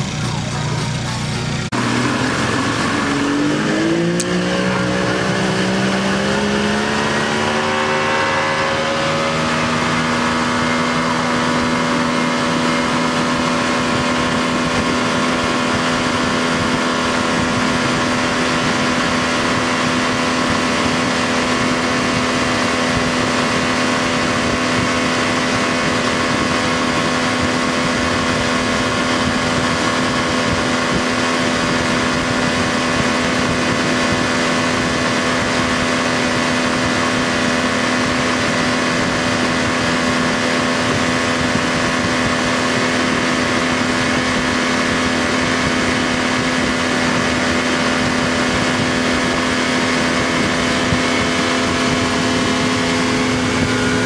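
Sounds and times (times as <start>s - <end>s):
boat engine running: 0.0s - 54.0s
steady rushing noise: 0.0s - 54.0s.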